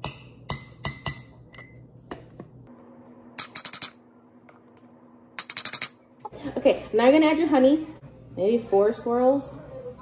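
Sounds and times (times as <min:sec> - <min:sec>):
spoon clinking against glass jars: 0:03.4 - 0:04.0, 0:05.4 - 0:06.0.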